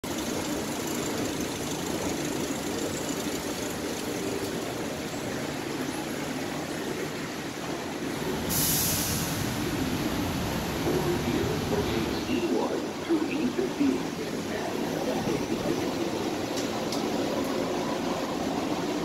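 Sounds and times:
train hum and rumble: 0:00.0 - 0:19.0
loud hiss of air: 0:08.1 - 0:10.8.

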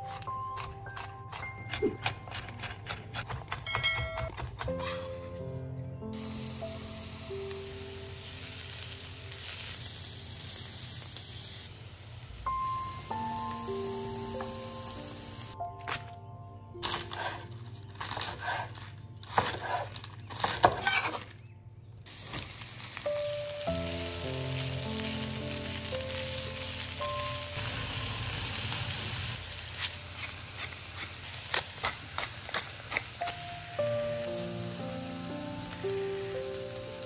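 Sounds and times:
food sizzling in hot oil: 0:06.2 - 0:15.6, 0:22.1 - 0:37.0
oil crackling and popping: 0:07.3 - 0:11.7, 0:22.1 - 0:33.5.

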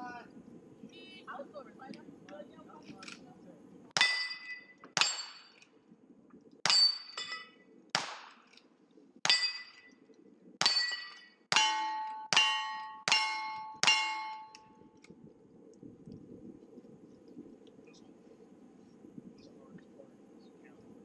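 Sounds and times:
steel plate ringing: 0:04.0 - 0:05.6, 0:06.7 - 0:07.6, 0:09.3 - 0:10.0, 0:10.6 - 0:14.8
gunshots: 0:08.0 - 0:08.5.

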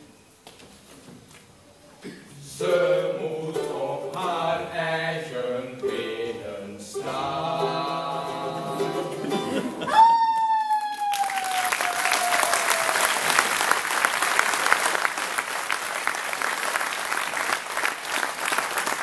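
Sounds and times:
audience applause: 0:09.3 - 0:19.0
high drawn-out whoop: 0:09.8 - 0:13.2.

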